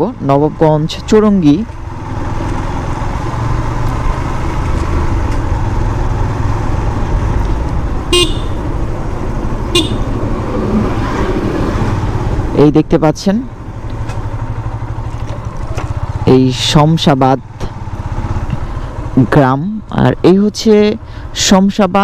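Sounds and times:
motorcycle engine running: 0:00.0 - 0:22.0
vehicle horn toots: 0:08.1 - 0:08.7, 0:09.7 - 0:10.2.

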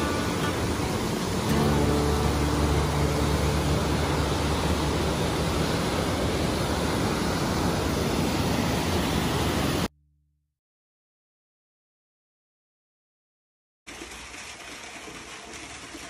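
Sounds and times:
stream and waterfall rushing: 0:00.0 - 0:09.9.

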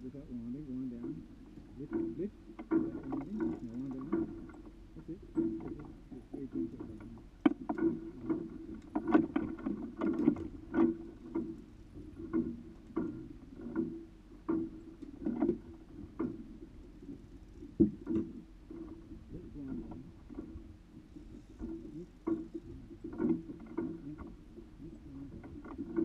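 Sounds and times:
water slapping boat hull: 0:00.0 - 0:26.0.

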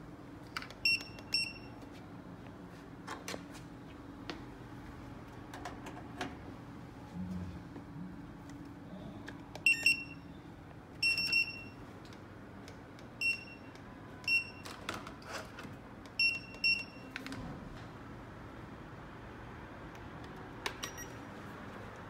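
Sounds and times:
barcode scanner beeps: 0:00.8 - 0:01.8, 0:09.6 - 0:10.4, 0:11.0 - 0:11.8, 0:13.2 - 0:14.8, 0:16.1 - 0:17.1, 0:20.8 - 0:21.2.

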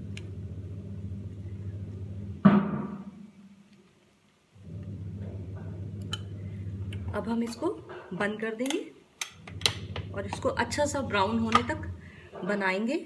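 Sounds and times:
steady low hum: 0:00.0 - 0:03.1, 0:04.5 - 0:08.2, 0:09.4 - 0:12.4.

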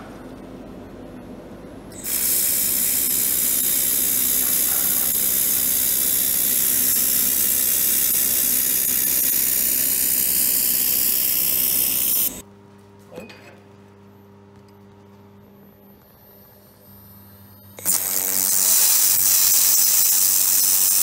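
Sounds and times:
laser welder hissing: 0:02.0 - 0:12.4, 0:17.8 - 0:21.0.

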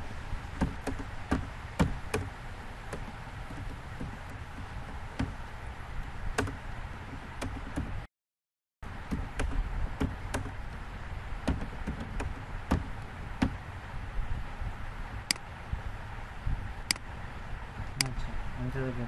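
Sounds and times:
low background hiss: 0:08.9 - 0:19.0.

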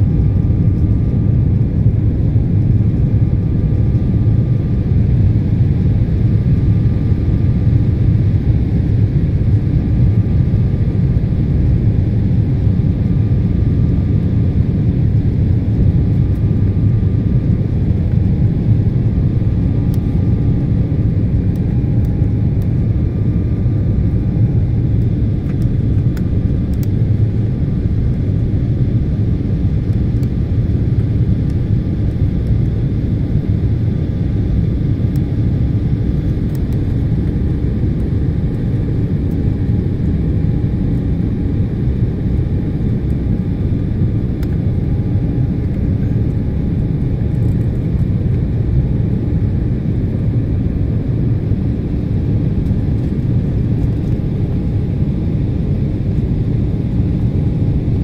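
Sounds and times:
faint steady hum: 0:00.0 - 0:58.0
jet engines rumbling: 0:00.0 - 0:58.0.

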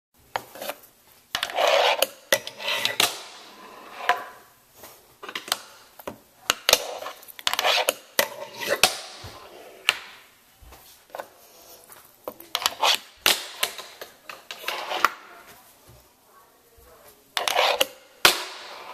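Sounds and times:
fingerboard wheels rolling on tabletop: 0:01.4 - 0:04.5, 0:06.5 - 0:10.0, 0:13.6 - 0:15.3, 0:17.4 - 0:18.0.

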